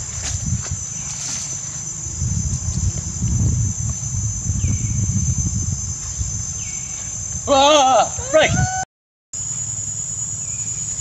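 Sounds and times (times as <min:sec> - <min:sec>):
low rumble: 0:00.0 - 0:07.4
high-pitched insect drone: 0:00.0 - 0:08.8, 0:09.4 - 0:11.0.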